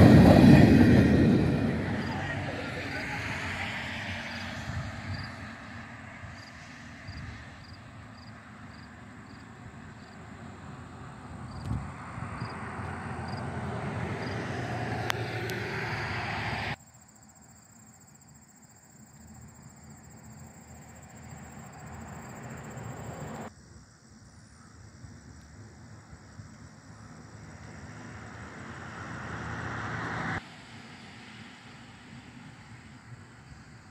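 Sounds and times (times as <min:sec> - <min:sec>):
low engine rumble: 0:00.0 - 0:07.0
faint cricket chirps: 0:03.4 - 0:14.6, 0:16.8 - 0:33.9.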